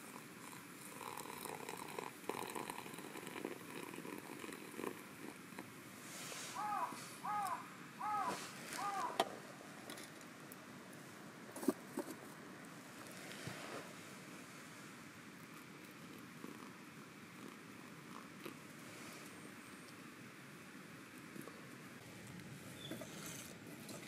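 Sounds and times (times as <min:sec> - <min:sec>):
water trickling into filter: 0:00.9 - 0:05.0
bird calling: 0:06.5 - 0:09.3, 0:22.7 - 0:23.4.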